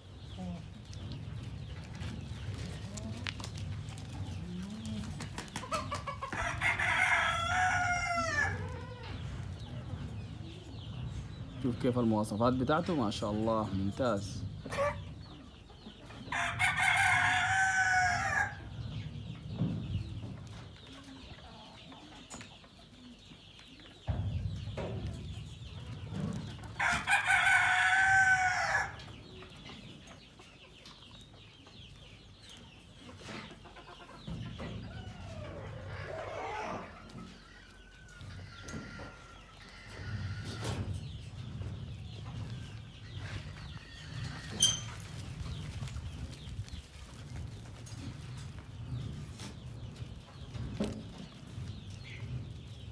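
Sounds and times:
chickens and farm animals calling: 0.0s - 52.9s
rooster crowing: 6.4s - 8.6s, 26.8s - 29.0s.

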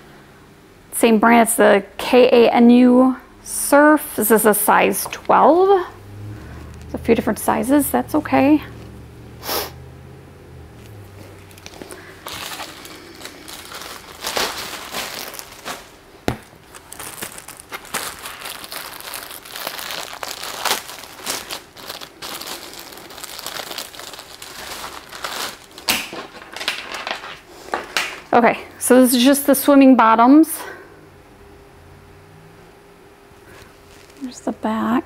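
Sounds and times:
packaging crinkling and rustling: 10.8s - 28.4s, 33.5s - 34.4s.

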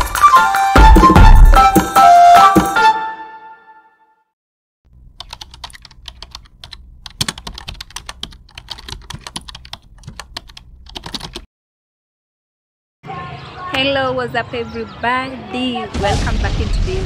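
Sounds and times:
keyboard typing: 5.1s - 11.5s.

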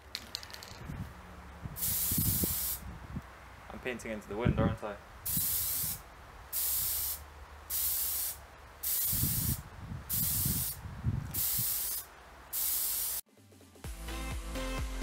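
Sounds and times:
spray-paint can spraying: 1.8s - 2.8s, 5.3s - 13.2s.

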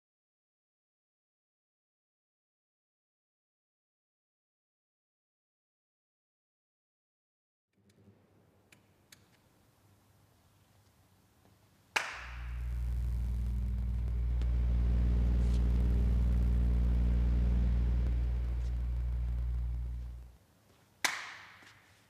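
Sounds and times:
sharp clap: 11.9s - 14.6s, 21.0s - 21.8s
kinetic wall mechanism humming: 12.2s - 20.4s.

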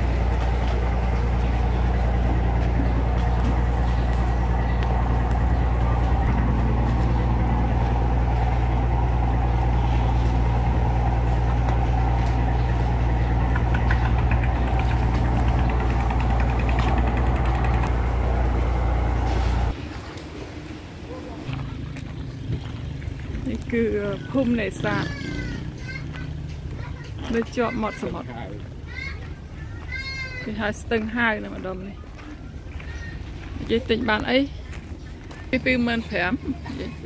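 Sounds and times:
boat engine idling: 0.0s - 19.8s, 21.4s - 29.7s.

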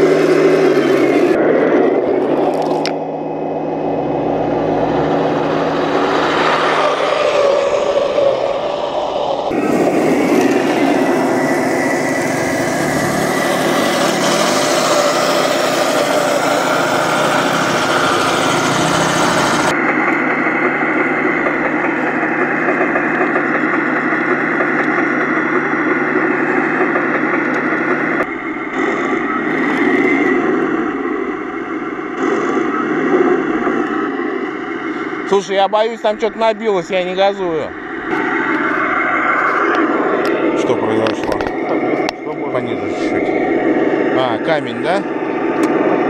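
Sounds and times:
model tank mechanical whir: 0.0s - 20.2s.

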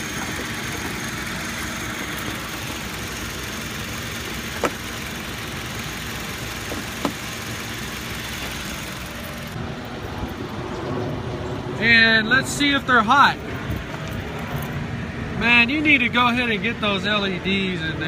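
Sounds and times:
truck engine idling: 0.0s - 10.8s.

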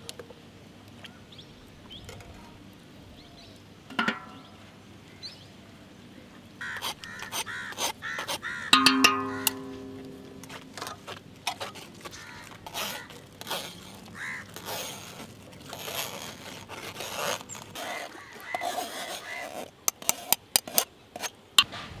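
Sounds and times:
spoon scraping metal strainer: 6.8s - 21.4s.

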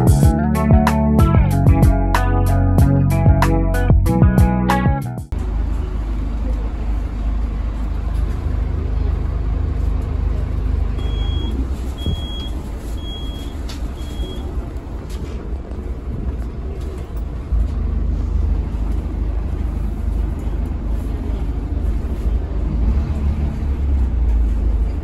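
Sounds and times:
bus engine and road rumble: 0.0s - 25.0s
short high beeps: 11.0s - 14.5s.

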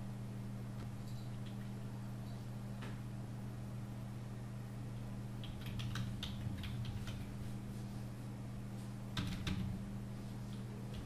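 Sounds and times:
steady low hum: 0.0s - 11.0s
keyboard typing: 5.4s - 7.4s, 9.2s - 9.7s.

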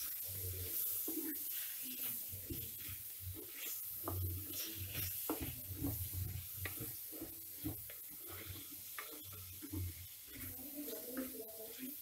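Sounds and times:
light frying sizzle: 0.0s - 12.0s
wooden spatula scraping pot: 0.0s - 12.0s.

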